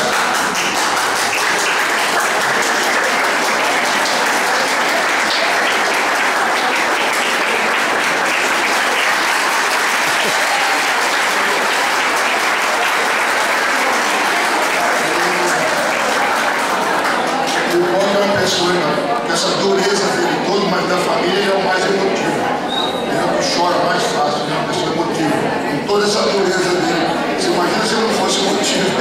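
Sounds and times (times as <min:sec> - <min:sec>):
audience applauding: 0:00.0 - 0:18.4.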